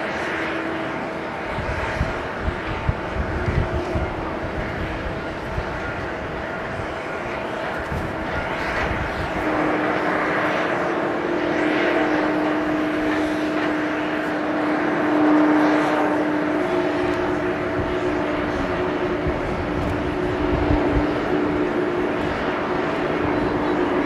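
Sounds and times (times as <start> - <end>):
jet engines roaring and whining: 0.0 - 24.0.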